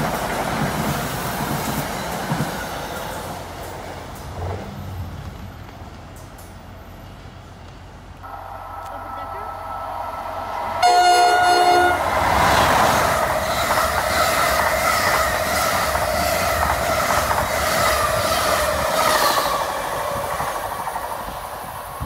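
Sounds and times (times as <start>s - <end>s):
train whine: 0.0s - 22.0s
train horn blast: 8.2s - 12.6s
train wheels clattering over rail joints: 12.9s - 20.7s.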